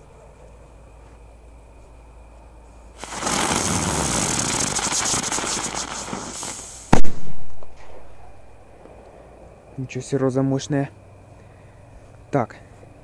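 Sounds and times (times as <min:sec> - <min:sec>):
firework hissing and crackling: 0:02.9 - 0:08.0
small firework pop: 0:03.0 - 0:08.0
firework loud bang: 0:03.0 - 0:08.2.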